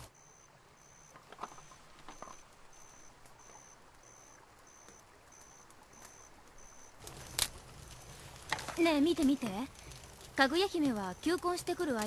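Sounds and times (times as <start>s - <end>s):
insect chirping: 0.0s - 8.3s.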